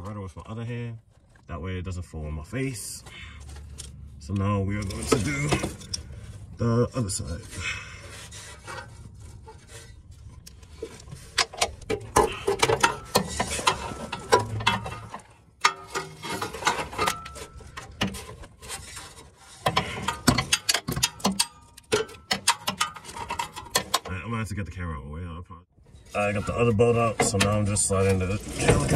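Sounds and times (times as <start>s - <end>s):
impact wrench rattling: 19.7s - 24.0s.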